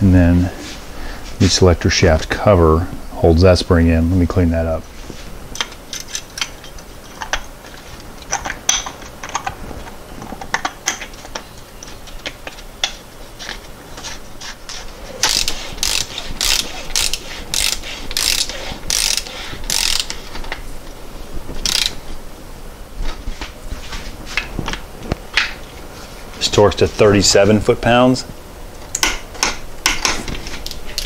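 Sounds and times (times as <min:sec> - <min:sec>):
tools and parts being handled: 0:05.0 - 0:22.2, 0:28.8 - 0:31.0
ratchet wrench clicking: 0:15.2 - 0:20.2, 0:21.6 - 0:22.0.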